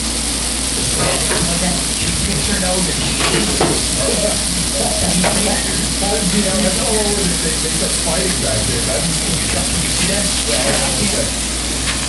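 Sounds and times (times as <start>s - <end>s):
burger patties sizzling on griddle: 0.0s - 12.0s
crackles of spitting fat: 0.4s - 12.0s.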